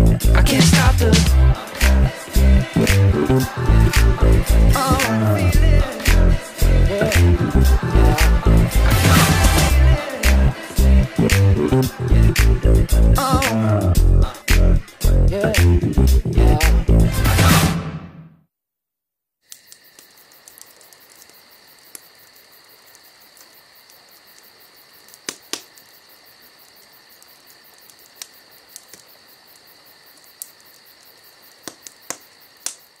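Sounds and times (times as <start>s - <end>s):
high insect chirring: 19.5s - 33.0s.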